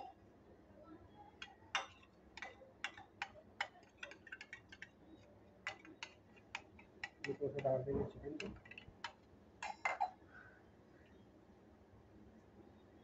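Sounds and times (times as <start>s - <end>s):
metal spoon tapping a bowl: 1.4s - 4.9s, 5.6s - 7.8s.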